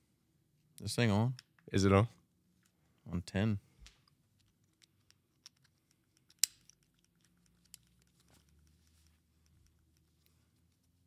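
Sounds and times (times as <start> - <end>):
collar clicks and rustles: 3.8 - 11.0.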